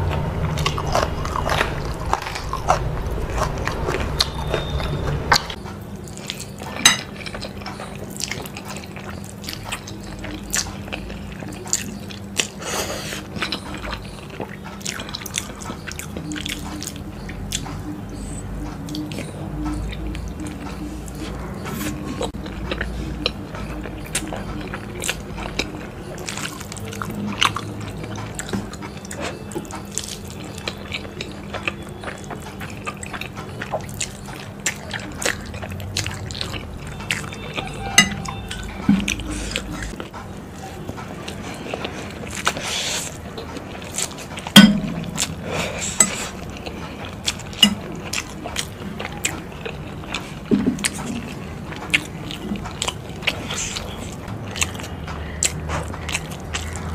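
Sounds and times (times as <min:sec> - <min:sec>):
chewing and slurping noodles: 0:00.0 - 0:56.9
fork clinking on glass bowl: 0:37.6 - 0:39.2.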